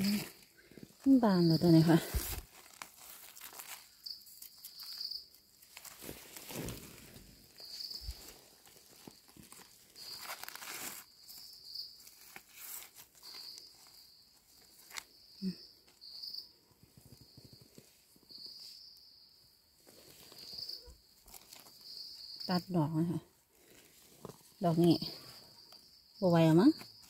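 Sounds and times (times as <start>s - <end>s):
insects buzzing: 3.3s - 16.5s.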